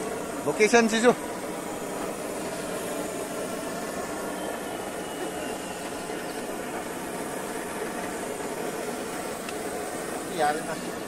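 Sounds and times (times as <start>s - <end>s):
blowtorch hissing: 0.0s - 11.0s.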